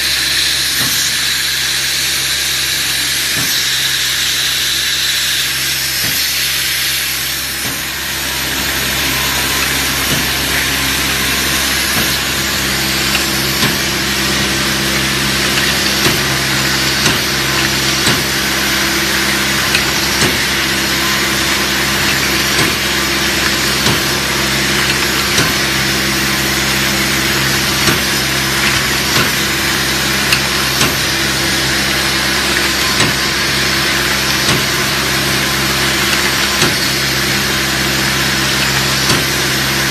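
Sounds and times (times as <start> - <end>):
machine motor hum and hiss: 0.0 - 39.9.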